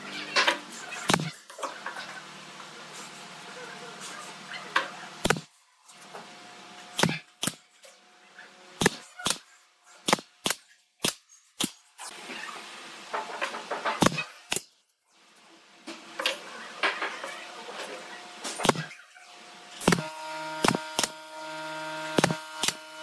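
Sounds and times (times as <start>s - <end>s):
nail gun shots: 1.1s - 1.3s, 5.2s - 5.5s, 7.0s - 7.6s, 8.8s - 11.8s, 14.0s - 14.7s, 18.6s - 19.0s, 19.8s - 21.2s, 22.1s - 22.8s.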